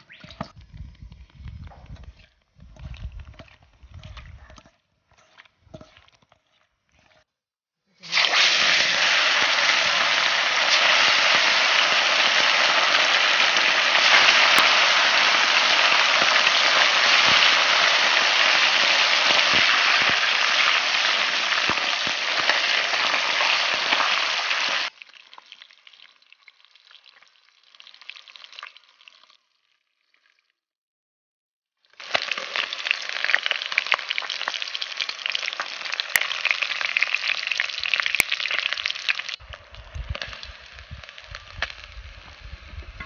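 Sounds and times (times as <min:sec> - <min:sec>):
fish deep-frying in hot oil: 0:07.9 - 0:30.5, 0:31.8 - 0:43.0.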